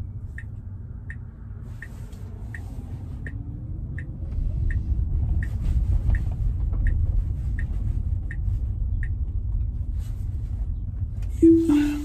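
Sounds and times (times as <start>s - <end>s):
turn signal ticking: 0.0s - 9.9s
road and tyre rumble: 0.0s - 12.0s.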